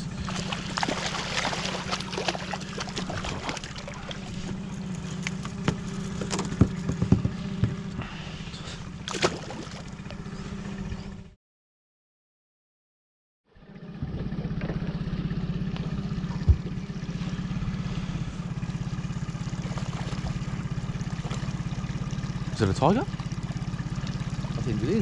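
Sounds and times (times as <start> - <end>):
boat motor humming: 0.0 - 11.4, 13.5 - 25.0
fish splashing: 0.1 - 6.6, 8.0 - 10.1, 15.8 - 24.6.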